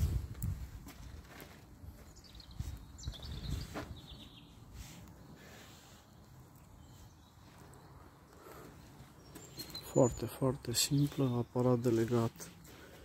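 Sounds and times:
faint bird chirps: 2.0 - 12.1.

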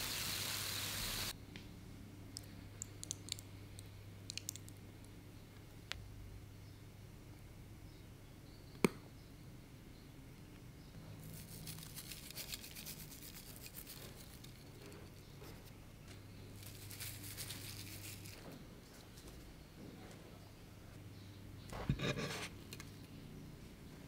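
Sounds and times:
seaweed flakes crackling patter: 11.2 - 14.6, 16.6 - 18.4
dried fish flakes rustling: 16.6 - 18.4.

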